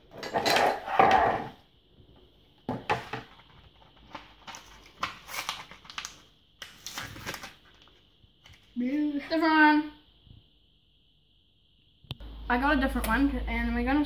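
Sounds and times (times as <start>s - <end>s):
plastic blister pack crinkling: 4.0s - 8.7s.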